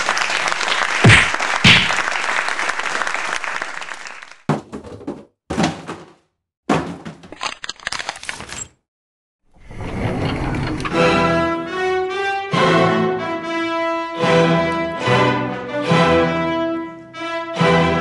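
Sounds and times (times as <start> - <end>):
applause-like noise: 0.0 - 4.5.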